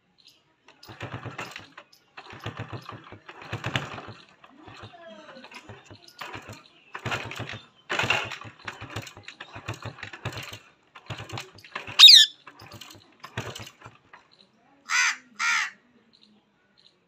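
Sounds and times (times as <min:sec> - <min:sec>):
parakeet whistle falling in pitch: 0:12.0 - 0:12.3
parakeet chattering: 0:12.0 - 0:12.4, 0:14.9 - 0:15.7.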